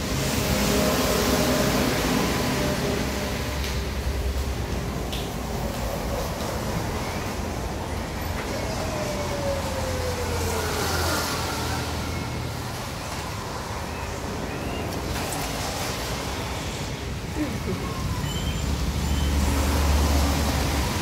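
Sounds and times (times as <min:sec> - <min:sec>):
vehicle passing on wet road: 0:00.0 - 0:17.3, 0:18.4 - 0:21.0
road traffic: 0:00.0 - 0:21.0.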